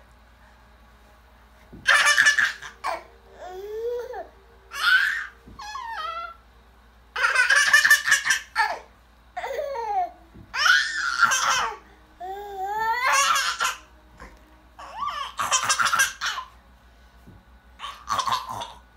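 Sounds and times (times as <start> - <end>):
baby laughing: 1.8 - 6.4, 7.2 - 10.0, 10.6 - 11.8, 12.9 - 13.9, 14.8 - 16.6, 17.8 - 18.8.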